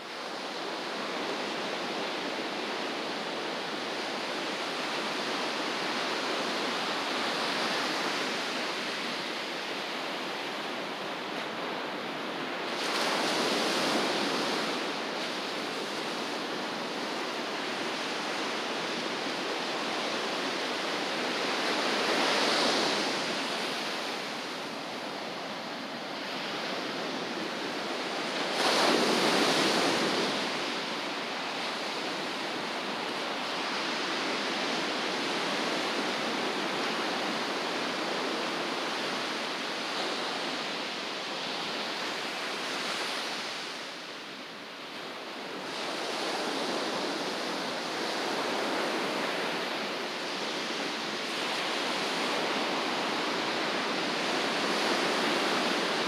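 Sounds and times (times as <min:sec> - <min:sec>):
ocean surf rushing: 0:00.1 - 0:56.0
waves breaking: 0:00.3 - 0:44.8.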